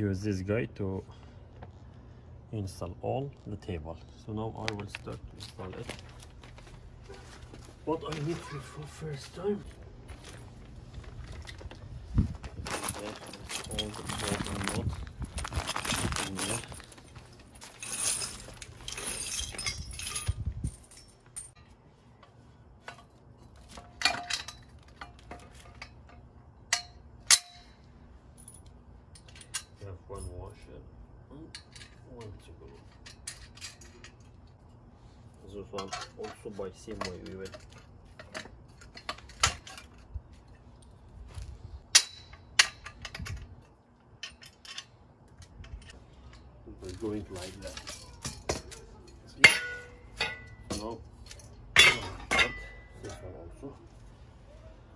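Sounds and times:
nuts and bolts rattling: 9.7s - 21.6s, 22.8s - 30.7s, 31.4s - 34.8s, 35.6s - 41.0s, 41.8s - 53.4s
metal tubes clinking: 12.5s - 30.7s, 31.4s - 41.0s, 41.8s - 53.8s.

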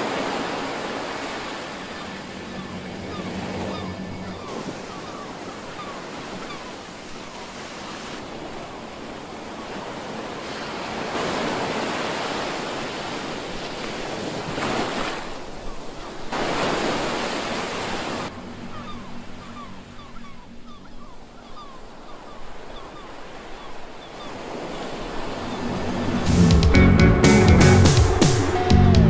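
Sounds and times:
waves breaking on rocky shore: 0.0s - 2.5s, 4.4s - 18.3s.

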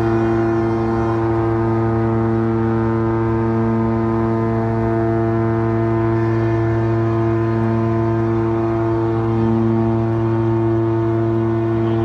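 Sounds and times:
ship horn long blast: 0.0s - 12.0s.

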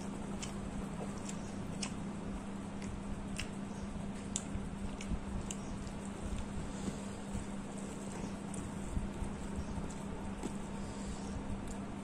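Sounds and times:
wet squishing of food mixed by hand: 0.0s - 10.9s
steady low hum: 0.0s - 12.0s
chewing mouth clicks: 0.3s - 2.0s, 2.8s - 3.6s, 4.2s - 6.5s.

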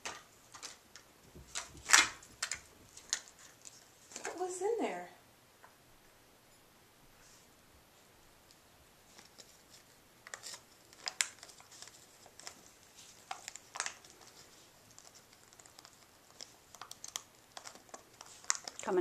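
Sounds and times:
wrapping paper crinkling and tearing: 0.0s - 4.3s, 9.1s - 19.0s.

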